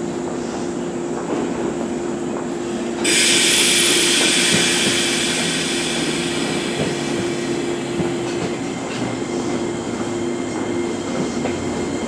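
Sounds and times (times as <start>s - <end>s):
electric train humming: 2.7s - 12.0s
air brakes hissing: 3.0s - 9.0s.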